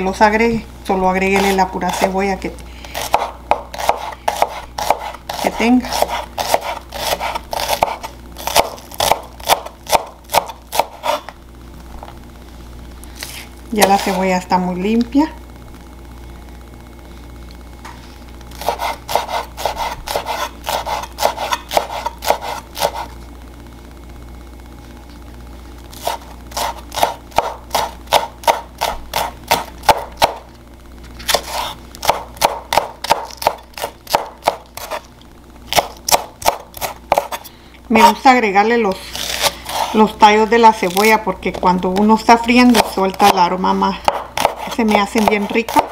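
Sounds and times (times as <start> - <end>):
knife chopping on wooden board: 3.0 - 11.2, 18.6 - 23.1, 26.0 - 30.4, 31.3 - 35.0, 35.7 - 37.4, 44.0 - 45.9.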